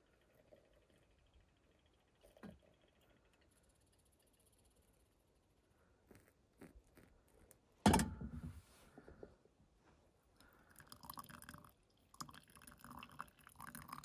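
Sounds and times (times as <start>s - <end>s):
coffee dripping and crackling: 0.0s - 5.1s, 6.1s - 7.6s, 10.4s - 14.0s
water trickling from a kettle: 10.4s - 14.0s.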